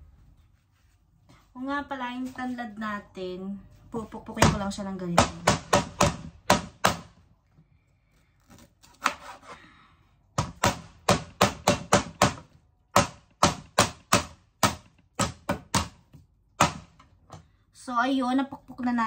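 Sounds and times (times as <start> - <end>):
pounding stalks sharp knocks: 5.2 - 7.2, 10.4 - 16.0, 16.6 - 17.0.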